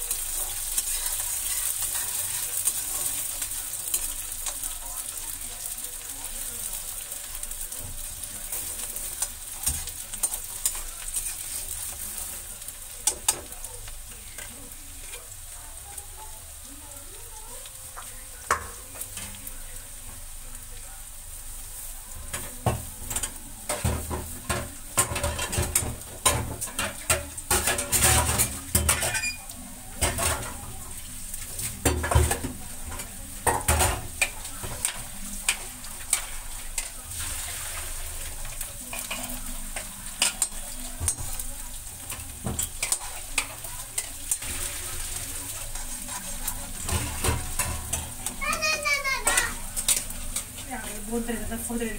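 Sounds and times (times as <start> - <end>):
onions sizzling in hot oil: 0.0 - 51.9
spatula scraping and knocking pan: 0.3 - 3.4, 22.3 - 29.4, 31.4 - 51.7.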